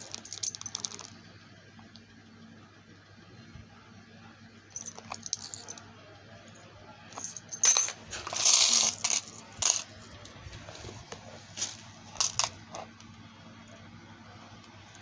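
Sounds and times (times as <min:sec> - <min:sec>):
metal charms jingling: 0:00.0 - 0:01.1, 0:04.8 - 0:05.8, 0:07.2 - 0:09.8.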